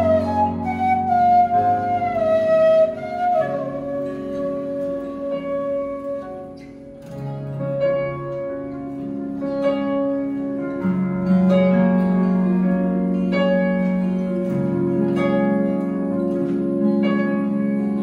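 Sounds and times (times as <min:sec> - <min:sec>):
bamboo flute melody: 0:00.0 - 0:07.0
sustained keyboard chords: 0:00.0 - 0:18.0.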